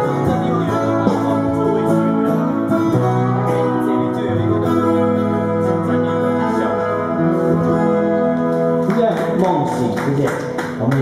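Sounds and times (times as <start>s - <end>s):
person singing: 0.0s - 8.8s
amplified guitars: 0.0s - 11.0s.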